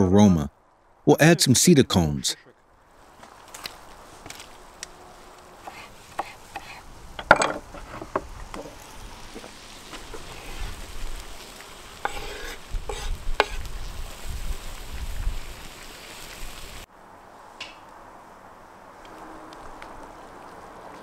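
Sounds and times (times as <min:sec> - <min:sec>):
tomatoes sizzling in fat: 0:02.9 - 0:07.1, 0:08.3 - 0:16.9
knife scraping cutting board: 0:12.0 - 0:13.6.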